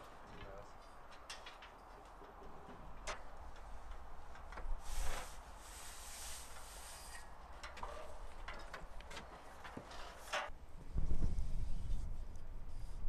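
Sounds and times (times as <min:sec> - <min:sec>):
clicks and knocks on metal scaffold: 0:07.6 - 0:10.5.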